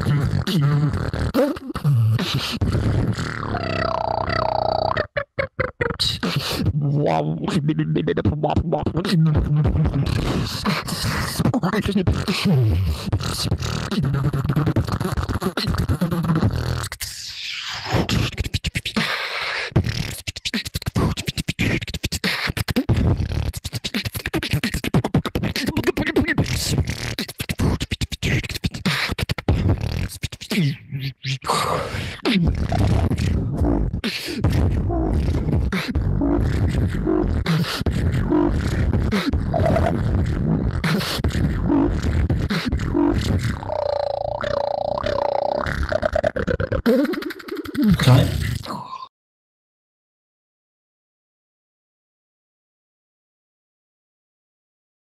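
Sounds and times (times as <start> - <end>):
person beatboxing: 0.0 - 49.1
steady deep bass: 6.6 - 11.2, 32.6 - 37.4.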